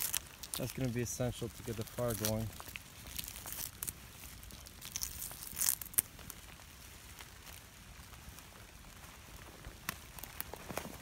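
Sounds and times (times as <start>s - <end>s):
bark tearing: 0.0s - 7.6s.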